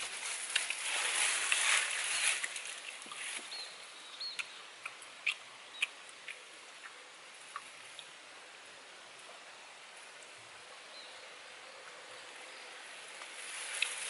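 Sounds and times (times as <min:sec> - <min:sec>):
dry leaves rustling and crackling: 0:00.0 - 0:03.6, 0:13.2 - 0:14.0.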